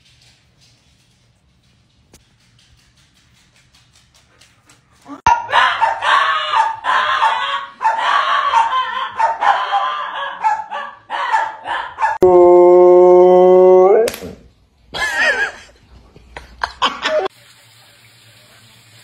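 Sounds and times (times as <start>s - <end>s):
small dog barking and yapping: 5.2s - 12.2s.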